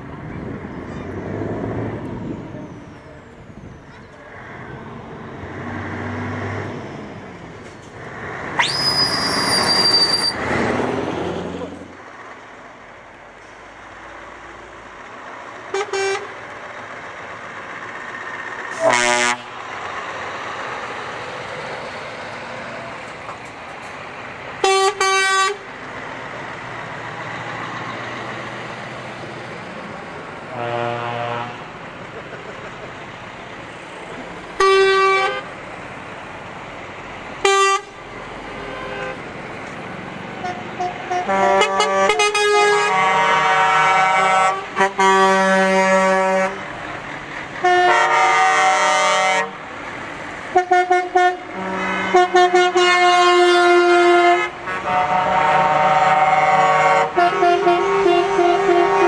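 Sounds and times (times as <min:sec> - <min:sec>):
truck engines running: 0:00.0 - 0:59.0
truck air horns: 0:08.6 - 0:10.6, 0:15.7 - 0:16.4, 0:18.7 - 0:19.6, 0:24.6 - 0:25.7, 0:30.5 - 0:31.8, 0:34.6 - 0:35.6, 0:37.4 - 0:39.3, 0:40.4 - 0:46.7, 0:47.6 - 0:49.6, 0:50.5 - 0:59.0.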